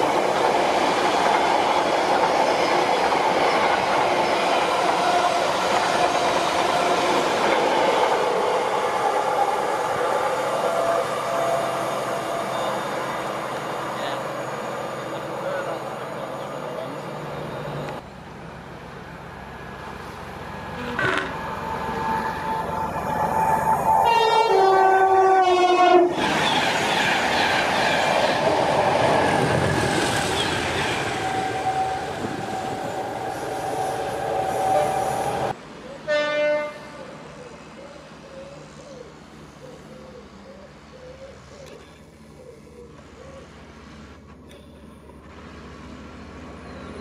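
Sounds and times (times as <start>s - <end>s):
train passing at speed: 0.0s - 40.5s, 45.1s - 47.0s
train horn: 10.5s - 12.9s, 23.9s - 26.2s, 31.1s - 37.1s.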